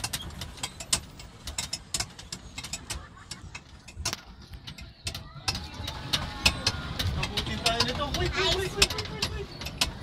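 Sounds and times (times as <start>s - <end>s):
pedal boat drive clicking: 0.0s - 10.0s.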